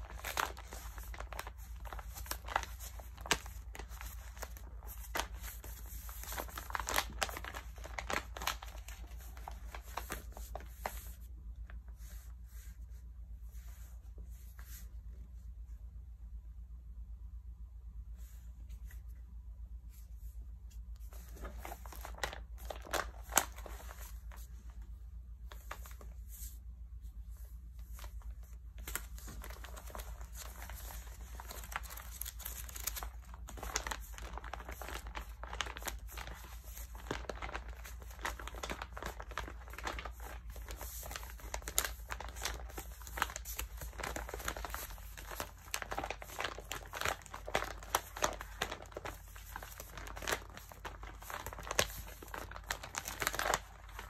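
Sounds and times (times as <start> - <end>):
magazine paper crinkling: 0.0 - 11.2, 21.0 - 24.5, 27.8 - 54.0.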